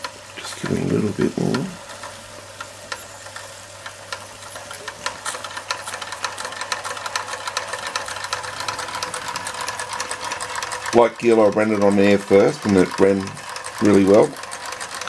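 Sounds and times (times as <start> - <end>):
toy steam engine ticking: 0.0 - 15.0.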